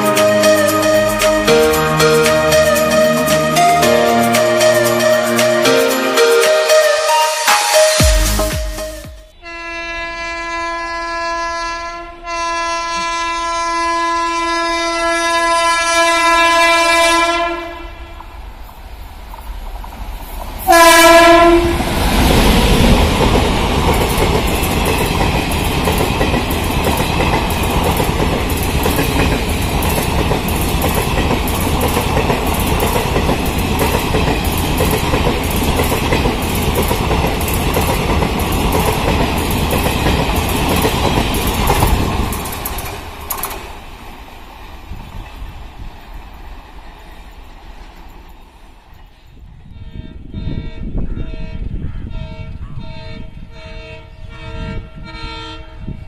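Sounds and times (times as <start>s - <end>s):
train coaches clickety-clack: 0.0s - 7.2s, 18.2s - 49.4s
locomotive air horn blast: 0.0s - 18.1s, 20.7s - 22.0s, 49.8s - 56.0s.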